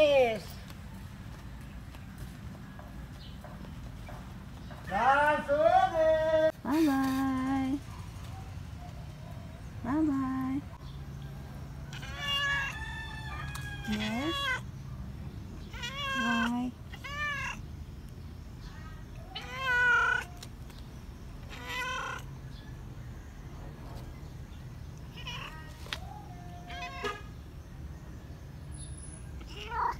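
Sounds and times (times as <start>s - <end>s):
cat meowing: 11.9s - 12.8s, 13.6s - 14.6s, 15.7s - 17.6s, 19.2s - 20.4s, 21.5s - 22.3s, 25.1s - 27.2s, 29.4s - 29.9s.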